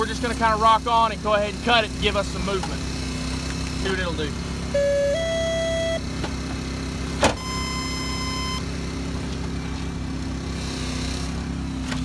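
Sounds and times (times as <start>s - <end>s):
engine droning: 0.0s - 12.0s
electronic beep: 4.8s - 6.0s, 7.4s - 8.6s.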